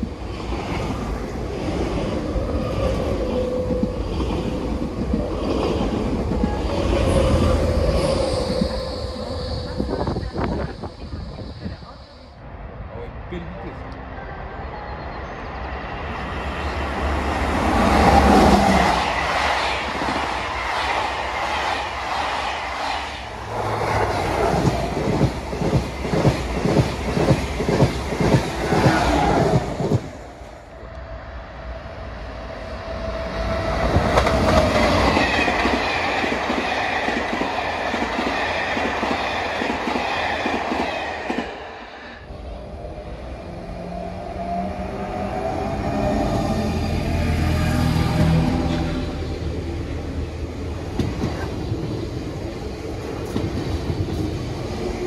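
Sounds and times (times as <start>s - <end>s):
electric train running with whine: 14.6s - 55.0s.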